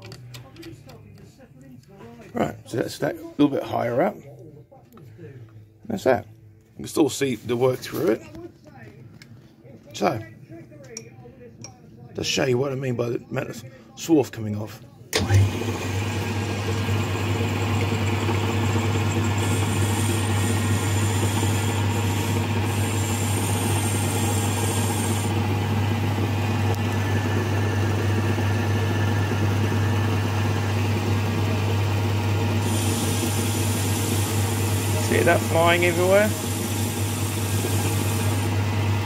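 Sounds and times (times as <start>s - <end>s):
lathe motor hum: 15.2s - 39.0s
cutting tool hiss: 18.8s - 25.4s, 32.6s - 38.6s.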